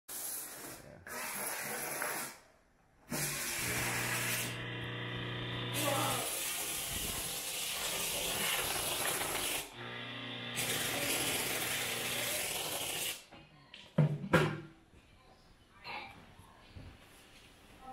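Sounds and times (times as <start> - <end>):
steam cleaner hissing: 3.1 - 4.6, 5.3 - 9.7, 10.6 - 13.2.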